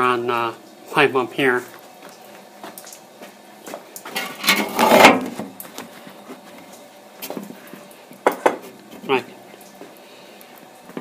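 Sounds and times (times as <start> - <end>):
loud scraping rustle: 4.1 - 6.2.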